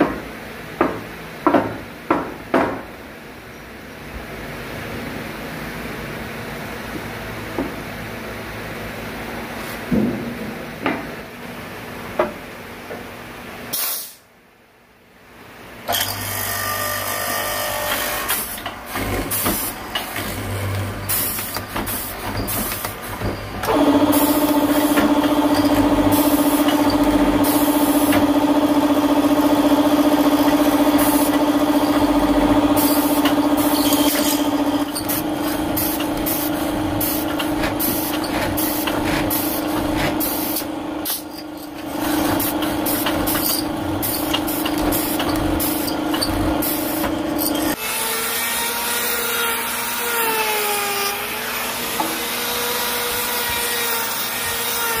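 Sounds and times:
air hissing from clamp: 0:13.7 - 0:14.3
machine motor hum: 0:17.7 - 0:47.8.

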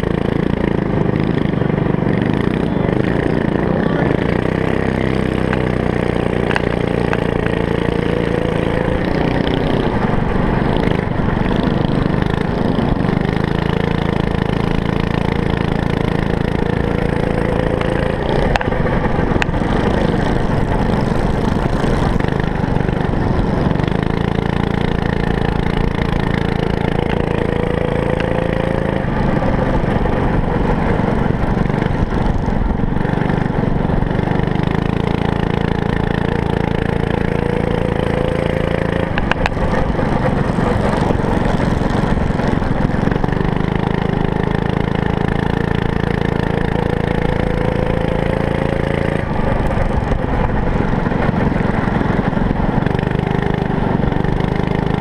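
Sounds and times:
small engine revving: 0:00.0 - 0:55.0.

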